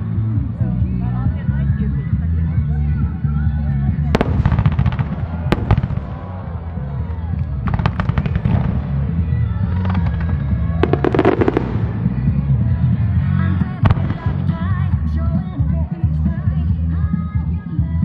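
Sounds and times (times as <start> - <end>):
music over loudspeakers: 0.0 - 18.0
fireworks crackling: 4.1 - 13.0, 13.6 - 15.0.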